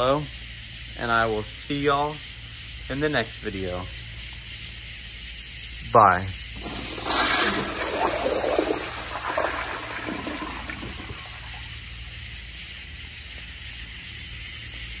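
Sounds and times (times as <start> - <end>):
toilet flushing: 6.6 - 11.9
faint water trickle: 6.6 - 12.2.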